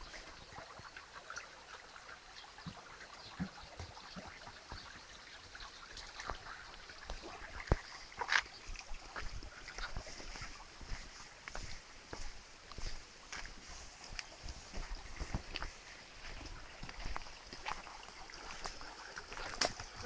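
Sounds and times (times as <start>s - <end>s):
footsteps on dirt path: 7.6s - 20.0s.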